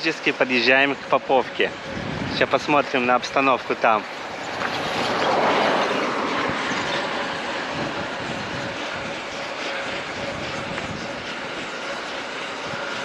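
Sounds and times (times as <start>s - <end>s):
vehicle passing at speed: 1.9s - 10.8s.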